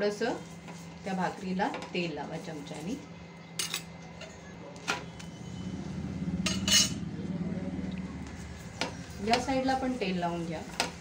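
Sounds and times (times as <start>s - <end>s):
low hum: 4.9s - 10.4s.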